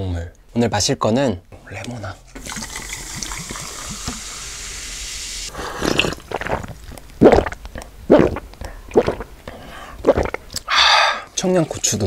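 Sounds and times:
liquid pouring: 2.3 - 9.3
loud wet squelches: 5.6 - 10.7.

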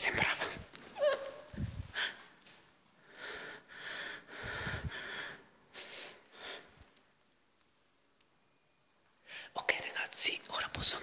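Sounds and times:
person breathing into microphone: 3.1 - 6.9.

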